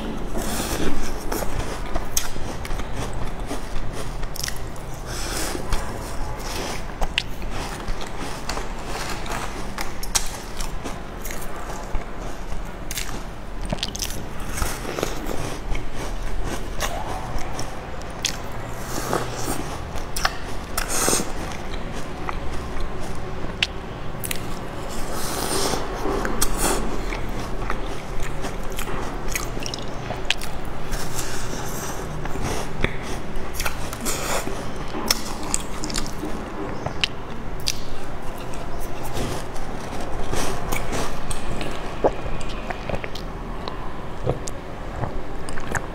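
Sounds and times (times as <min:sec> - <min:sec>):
crunchy cookie chewing: 0:00.0 - 0:45.9.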